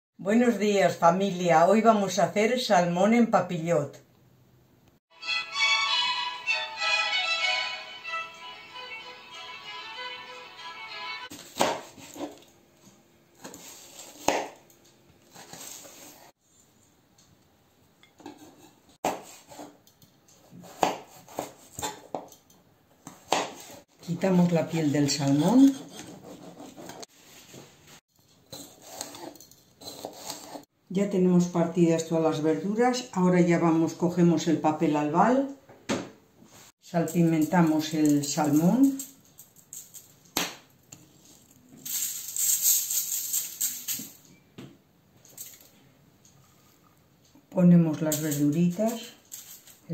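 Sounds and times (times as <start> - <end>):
knife chopping on cutting board: 11.3 - 12.4, 13.4 - 14.6, 19.0 - 19.8, 20.5 - 22.0, 23.1 - 23.7
salt grains pattering on foil: 41.2 - 44.0.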